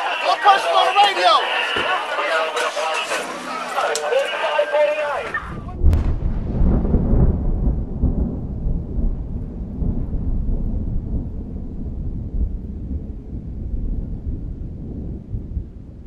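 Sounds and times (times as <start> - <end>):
thunder crack and rumble: 5.3 - 16.0.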